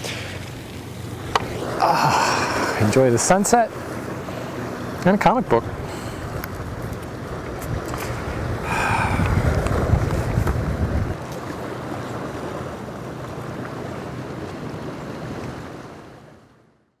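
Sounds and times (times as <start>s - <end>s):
sea washing against rocky shore: 0.0s - 16.4s
wind buffeting microphone: 1.2s - 11.2s.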